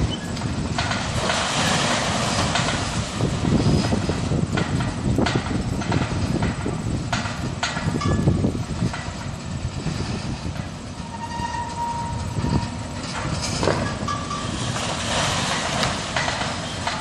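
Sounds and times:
crane mechanical rumble: 0.0 - 17.0
demolition knocks and clattering: 0.7 - 9.4, 12.6 - 17.0.

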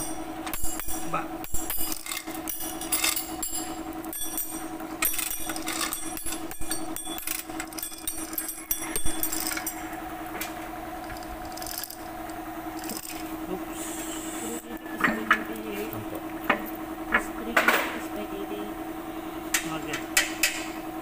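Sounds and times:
steady mechanical hum: 0.0 - 21.0
metal chain clinking and rattling: 1.8 - 9.8.

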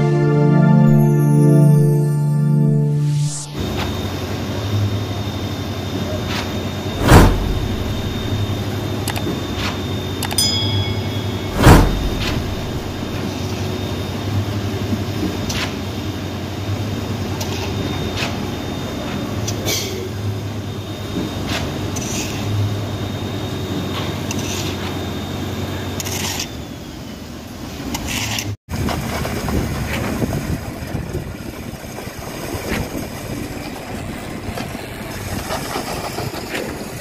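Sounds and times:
diesel engine drone: 0.0 - 14.7.

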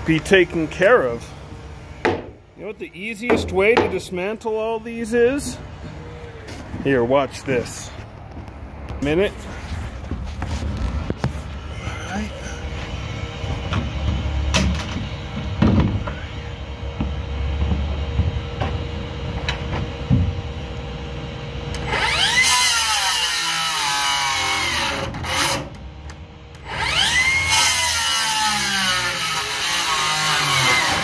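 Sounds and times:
knocks: 2.0 - 2.4
power tool motor whining: 21.8 - 25.8, 26.6 - 31.0.

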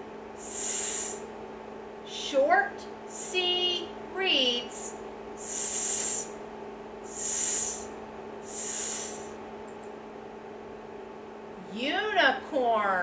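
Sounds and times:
person making hissing s sound: 0.4 - 1.2, 3.1 - 3.5, 4.7 - 6.4, 7.1 - 9.4.

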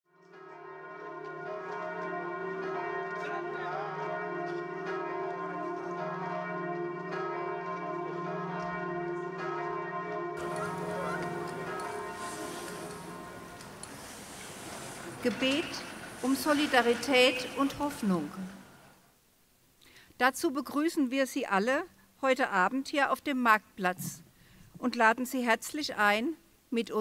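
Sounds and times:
church bells ringing: 0.2 - 18.3.

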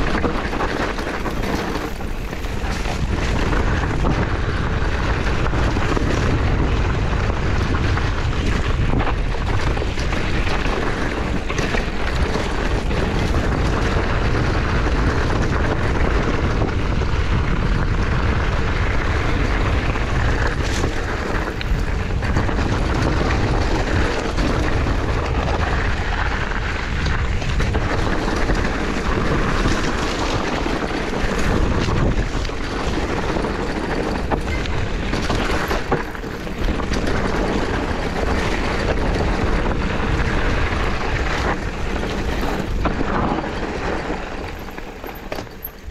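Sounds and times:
bike knocks and rattles: 0.0 - 45.9
bike tyres rolling on dirt: 0.0 - 45.9
wind buffeting microphone: 0.0 - 45.9.

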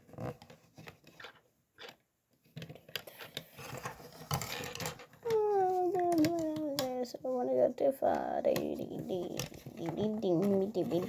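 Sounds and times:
plastic building bricks clicking: 0.4 - 7.1
child humming: 5.2 - 6.8.

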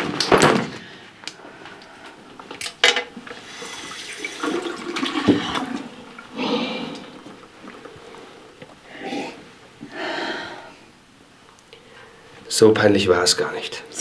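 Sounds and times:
tap water running into basin: 3.4 - 8.0.

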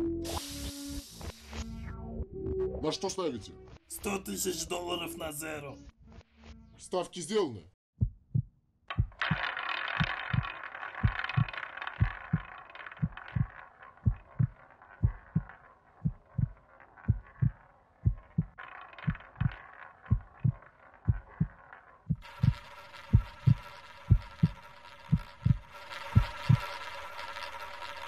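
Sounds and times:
cartoon heartbeat thumps: 8.0 - 9.4, 10.0 - 22.2, 23.1 - 26.6
roulette ball whirring: 8.9 - 28.0.

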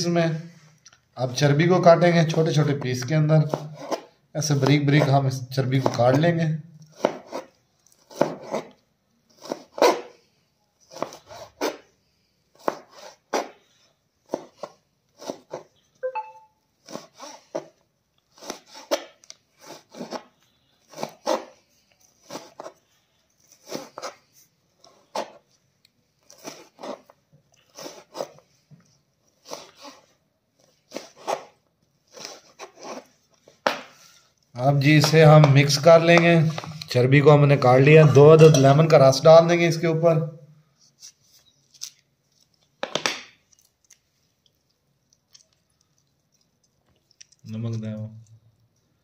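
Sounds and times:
knife chopping on plastic board: 2.2 - 7.5, 8.1 - 8.7, 12.6 - 13.6, 14.2 - 15.6.

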